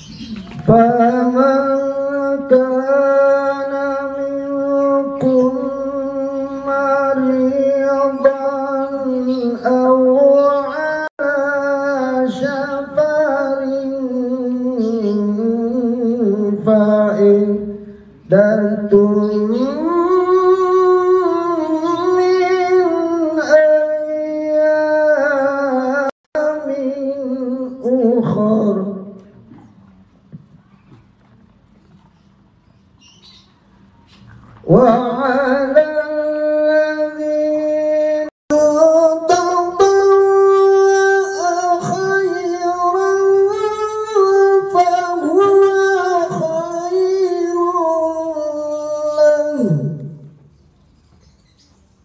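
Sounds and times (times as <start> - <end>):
man reciting in melodic style: 0.0 - 30.4, 34.6 - 50.6
man chanting into microphone: 0.6 - 29.6, 34.6 - 50.4.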